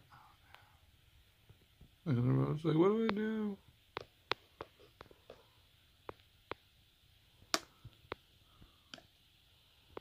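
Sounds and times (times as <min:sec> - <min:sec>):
small clicks and taps: 0:03.9 - 0:06.6.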